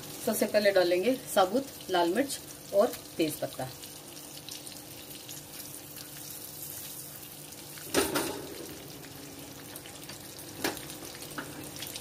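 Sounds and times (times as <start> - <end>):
butter sizzling and crackling: 0.0 - 12.0
knocks on pan: 7.9 - 8.5.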